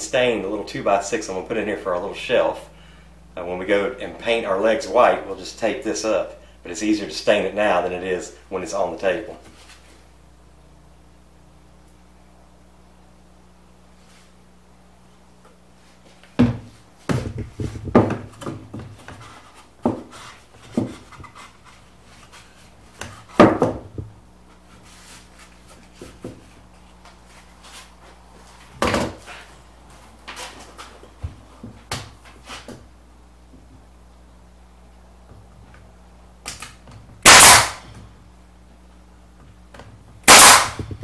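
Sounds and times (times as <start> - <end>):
wooden board knocking and scraping: 16.4 - 21.8.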